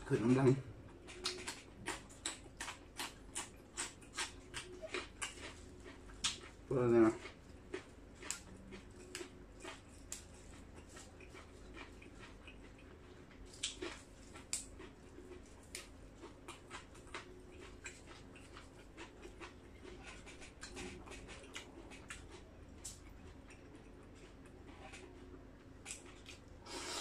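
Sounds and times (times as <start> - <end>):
herbs and greens snapping: 13.5 - 14.8.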